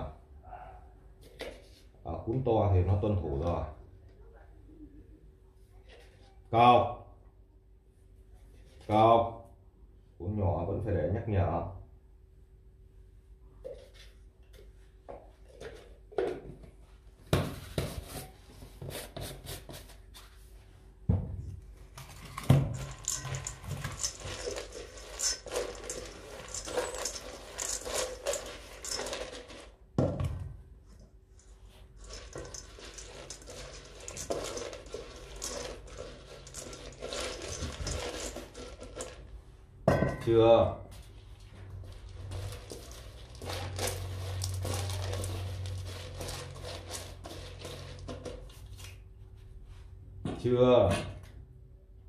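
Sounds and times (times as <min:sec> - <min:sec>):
dry kibble rattling in metal bowls: 0:22.1 - 0:29.8, 0:31.3 - 0:39.4, 0:41.4 - 0:48.7
metal bowls knocking on tiled floor: 0:39.9 - 0:40.4.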